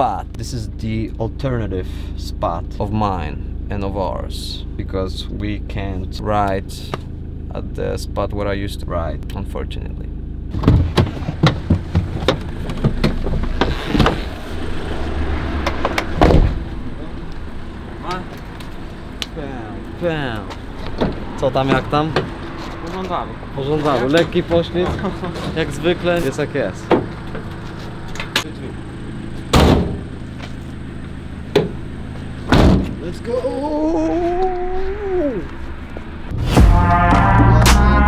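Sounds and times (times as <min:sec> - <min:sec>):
low hum: 0:00.0 - 0:32.6, 0:33.5 - 0:38.0
low steady rumble: 0:00.0 - 0:38.0
clunks and knocks in van: 0:10.5 - 0:14.4, 0:15.6 - 0:16.7, 0:26.8 - 0:27.5, 0:29.5 - 0:30.1, 0:31.5 - 0:31.8, 0:32.4 - 0:33.0
loud thump: 0:10.5 - 0:14.4, 0:15.7 - 0:16.8, 0:29.5 - 0:30.1, 0:32.5 - 0:33.0, 0:36.3 - 0:38.0.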